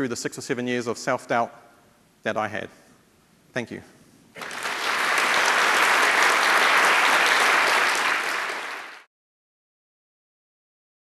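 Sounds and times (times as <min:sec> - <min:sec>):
audience applauding: 0:04.4 - 0:09.1.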